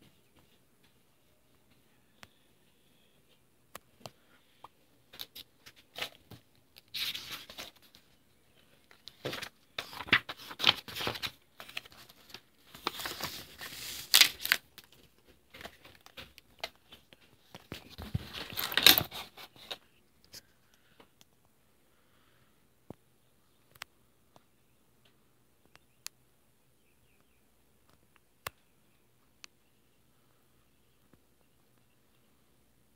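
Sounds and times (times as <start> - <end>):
stiff paper pages turning: 5.2 - 8.1, 8.8 - 19.8.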